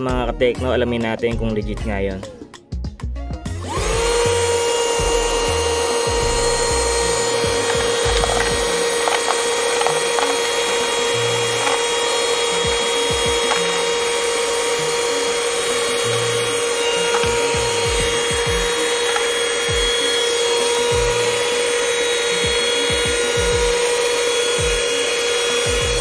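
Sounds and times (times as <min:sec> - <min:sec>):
handheld vacuum motor whining: 0:03.5 - 0:26.0.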